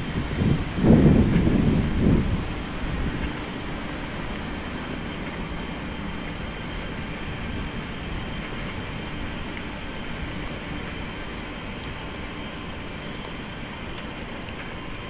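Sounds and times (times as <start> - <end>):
city rumble and hiss: 0.0 - 15.0.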